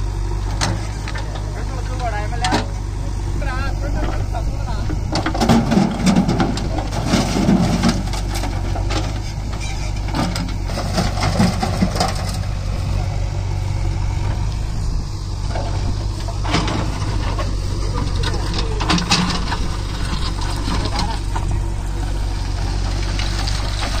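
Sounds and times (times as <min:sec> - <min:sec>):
diesel engines idling: 0:00.0 - 0:24.0
stones clattering into steel trolley: 0:05.1 - 0:12.5, 0:16.2 - 0:21.6.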